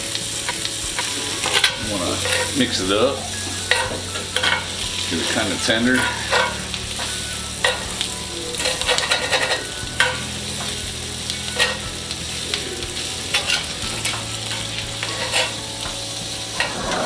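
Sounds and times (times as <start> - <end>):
asparagus sizzling in a skillet: 0.0 - 17.0
metal tongs clicking and scraping: 1.0 - 2.6, 3.7 - 4.7, 6.0 - 7.9, 8.6 - 10.7, 11.6 - 11.8, 13.3 - 15.6.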